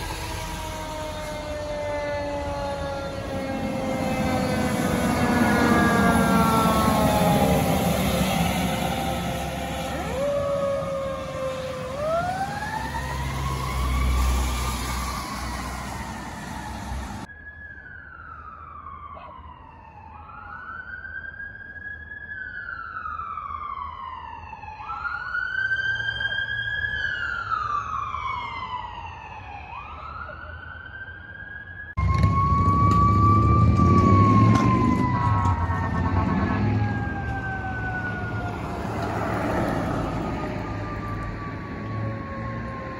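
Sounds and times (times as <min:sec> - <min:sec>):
engine rumble: 0:00.0 - 0:17.3, 0:32.0 - 0:42.9
emergency siren wailing: 0:00.0 - 0:42.9.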